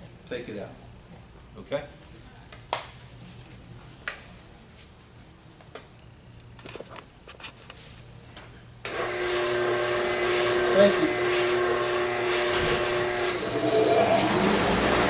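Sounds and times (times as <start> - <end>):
spindle sander motor humming: 8.9 - 15.0.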